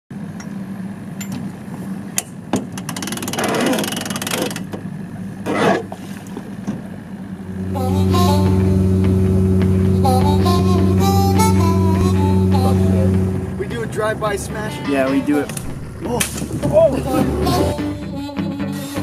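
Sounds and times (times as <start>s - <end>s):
engine idling: 0.1s - 18.3s
music: 7.6s - 19.0s.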